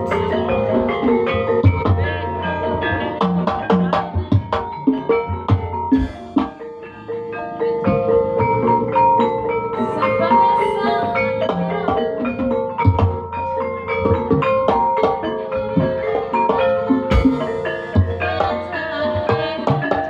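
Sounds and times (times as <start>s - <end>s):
drum strokes: 0.0s - 7.0s, 11.4s - 20.0s
gamelan kettle gongs and metallophones: 0.0s - 20.0s.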